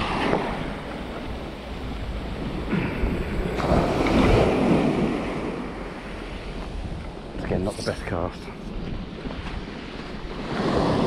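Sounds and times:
surf breaking on beach: 0.0 - 6.4, 9.7 - 11.0
wind buffeting microphone: 0.0 - 11.0.

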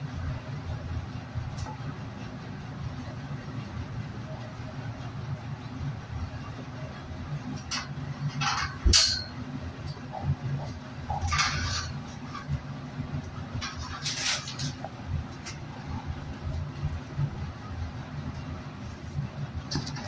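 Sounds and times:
refrigeration unit humming: 0.0 - 20.0
rustling and handling noises: 13.2 - 17.4.

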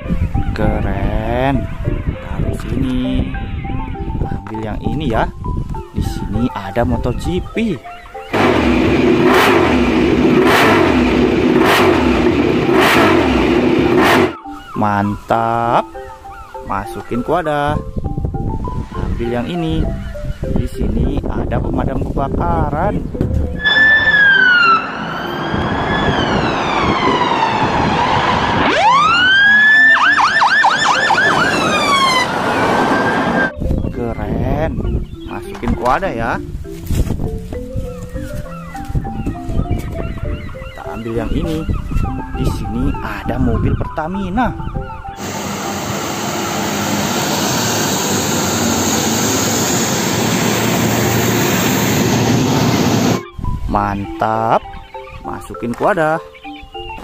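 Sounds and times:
fire engine siren: 8.2 - 14.6, 23.6 - 33.6, 43.9 - 53.3
tyres hissing on wet road: 45.2 - 53.2.

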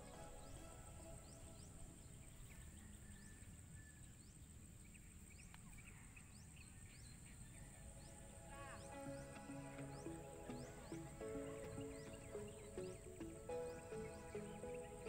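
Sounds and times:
soft background music: 0.0 - 3.3, 7.5 - 15.0.

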